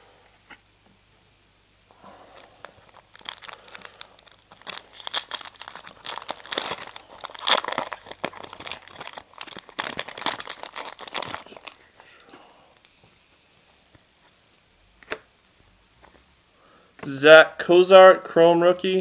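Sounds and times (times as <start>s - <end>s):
foil wrapper crinkling: 2.3s - 12.3s.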